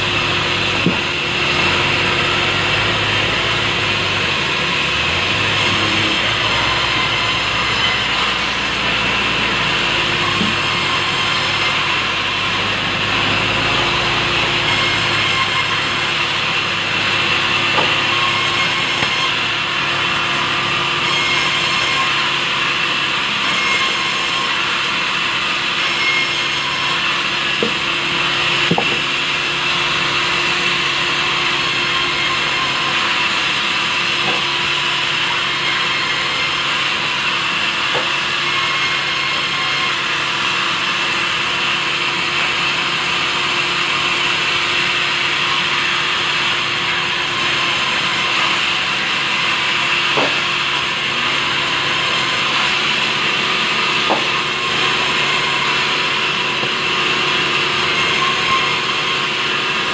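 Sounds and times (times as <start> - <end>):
band saw cutting wood: 0.0 - 59.9.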